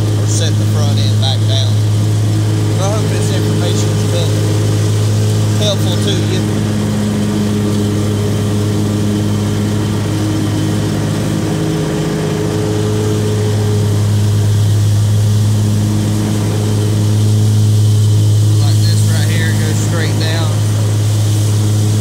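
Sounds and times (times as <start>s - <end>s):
riding mower engine running: 0.0s - 22.0s.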